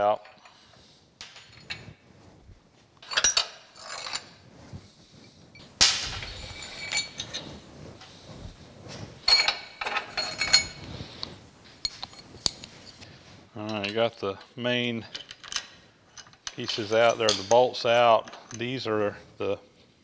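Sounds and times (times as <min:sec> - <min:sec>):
metal bolts clinking and clanking: 0:00.0 - 0:02.0, 0:03.0 - 0:04.4, 0:05.6 - 0:07.5, 0:09.2 - 0:10.9, 0:11.8 - 0:13.0, 0:13.6 - 0:18.8.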